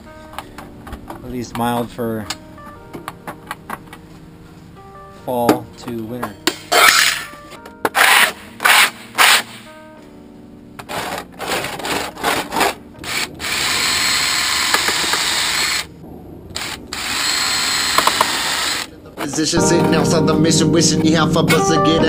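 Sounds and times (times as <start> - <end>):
metal edge rasping: 6.5 - 9.7, 10.9 - 15.9
cordless drill whining: 13.0 - 15.9, 16.6 - 18.9.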